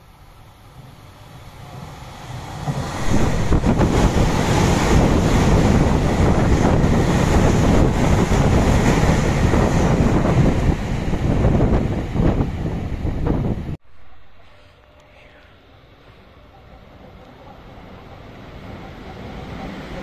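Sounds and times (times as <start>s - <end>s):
train wheels rushing on rail: 0.1s - 20.0s
wind noise on microphone: 2.7s - 14.0s.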